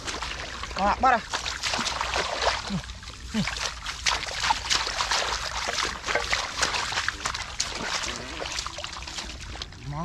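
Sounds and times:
hands squelching in wet mud: 0.0s - 10.0s.

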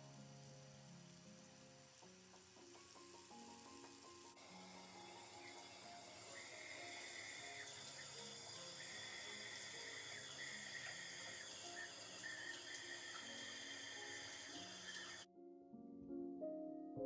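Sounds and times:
shower water hissing: 0.0s - 15.3s
slow instrumental music: 0.0s - 17.0s.

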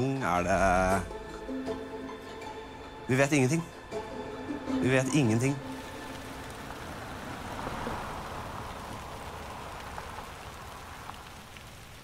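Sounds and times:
tyres hissing on wet road: 3.9s - 12.0s.

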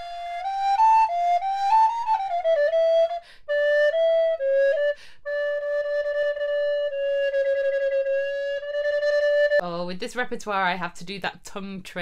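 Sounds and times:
recorder melody: 0.0s - 9.6s
quick breaths: 3.2s - 3.5s, 5.0s - 5.3s.

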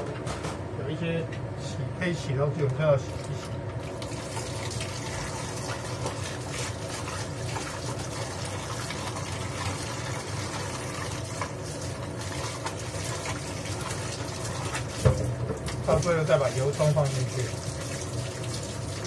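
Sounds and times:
tap running into sink: 14.6s - 16.2s.

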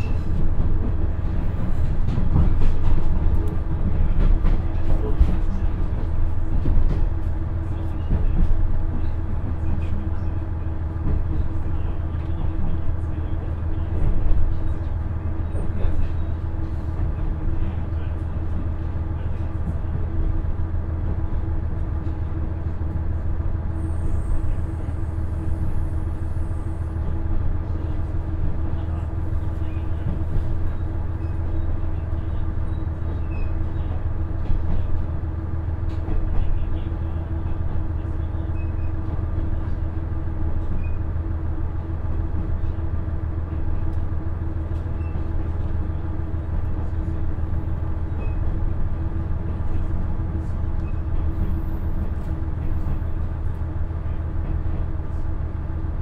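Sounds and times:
wheels rumbling on rail: 0.0s - 56.0s.

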